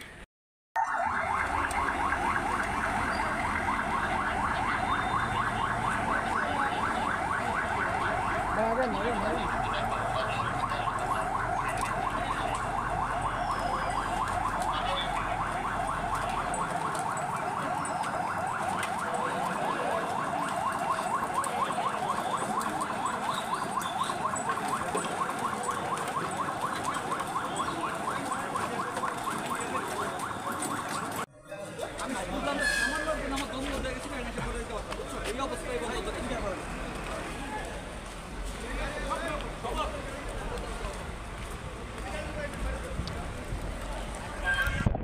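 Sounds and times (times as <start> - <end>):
electronic siren yelping: 0.8 - 31.2.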